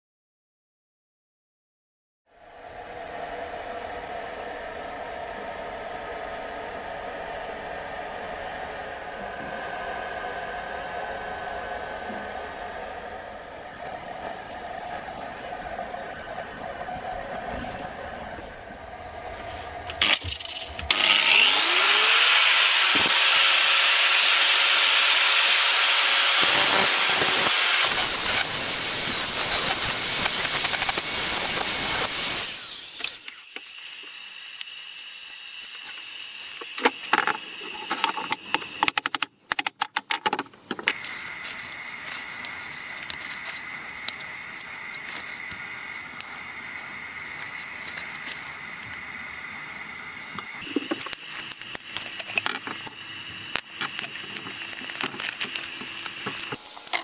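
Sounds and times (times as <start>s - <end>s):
angle grinder sanding wood: 19.3s - 38.8s.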